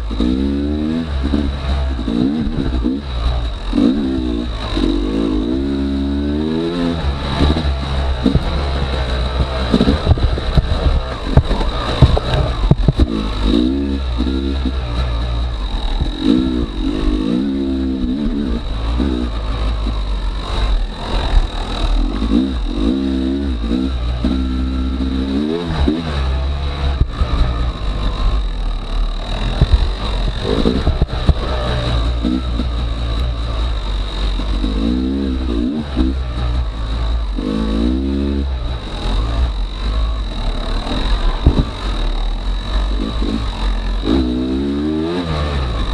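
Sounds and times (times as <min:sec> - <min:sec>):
dirt bike engine revving: 0:00.0 - 0:45.9.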